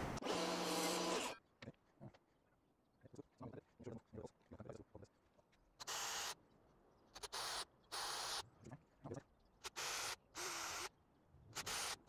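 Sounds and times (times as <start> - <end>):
cordless drill bursts: 0.2 - 1.4, 9.8 - 10.9.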